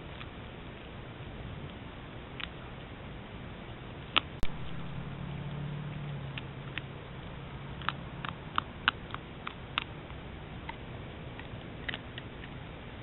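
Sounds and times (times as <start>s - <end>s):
low steady hum: 0.0s - 13.0s
teeth crunching and clicking: 7.7s - 12.6s.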